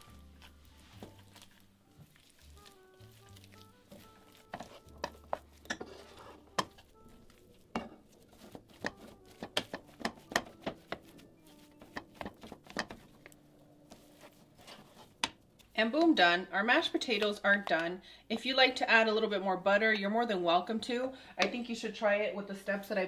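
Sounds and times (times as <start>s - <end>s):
potato masher knocking on pan: 7.8s - 11.2s.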